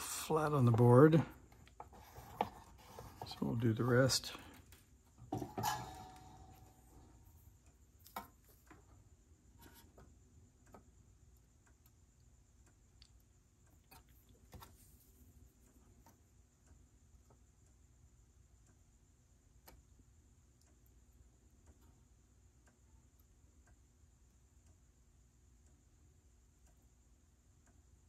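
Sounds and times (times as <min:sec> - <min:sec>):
faint steady hiss: 0:00.0 - 0:28.0.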